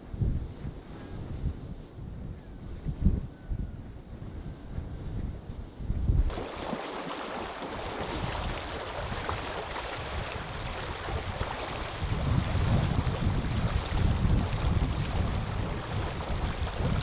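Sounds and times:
wind buffeting microphone: 0.0s - 17.0s
river water rushing: 6.3s - 12.2s.

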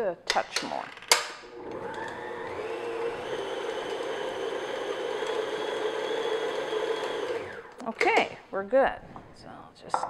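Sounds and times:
stand mixer motor running: 1.5s - 7.8s.

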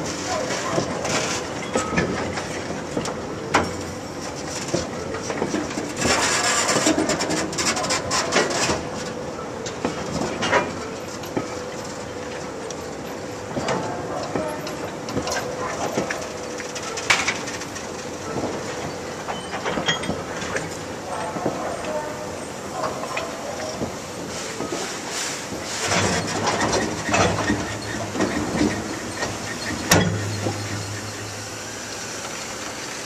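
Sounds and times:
train wheels rumbling on rails: 0.0s - 33.0s
wagons clanking: 9.7s - 33.0s.

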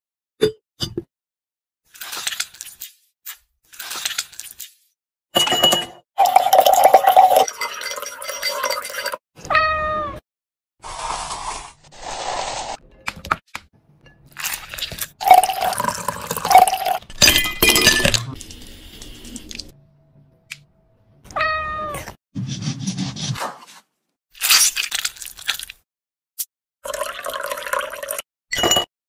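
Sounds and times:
ice cubes clinking into glass: 5.4s - 9.2s, 14.4s - 18.3s
cat meow: 9.4s - 10.2s, 21.3s - 22.2s.

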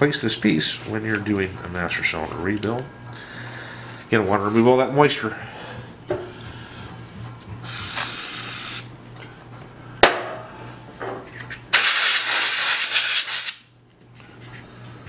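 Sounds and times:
aerosol spray hissing: 7.6s - 8.9s, 11.7s - 13.6s.

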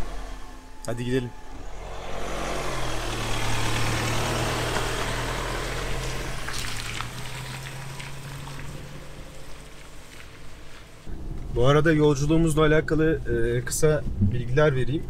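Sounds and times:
car engine hum: 0.0s - 15.0s
tyres hissing on wet road: 2.1s - 11.1s.

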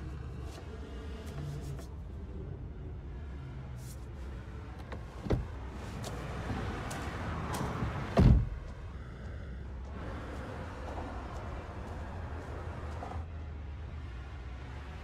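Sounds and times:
car cabin rumble: 4.7s - 6.2s, 6.9s - 13.2s
car door slamming: 7.8s - 8.6s.

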